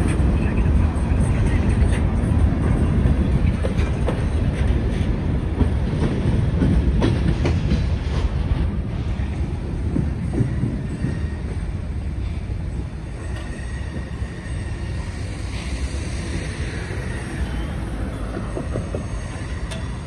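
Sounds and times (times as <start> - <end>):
freight train cars rumbling: 0.0 - 20.0
train wheel clicks: 18.2 - 20.0.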